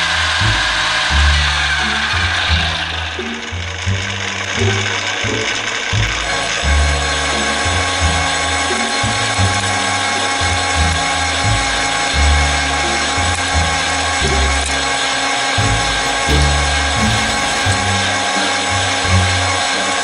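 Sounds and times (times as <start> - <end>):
metal lathe whining: 15.6 - 18.1
background music with bass line: 15.6 - 18.2.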